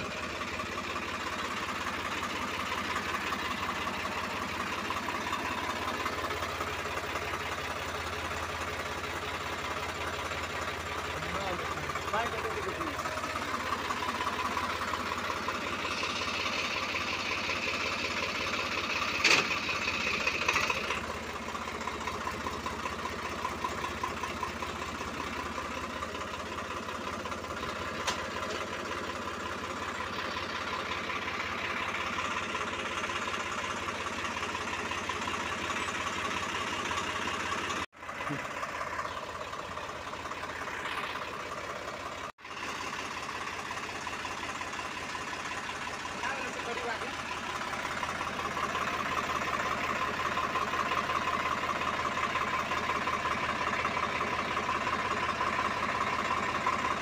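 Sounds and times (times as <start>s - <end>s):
tractor diesel engine idling: 0.0s - 57.0s.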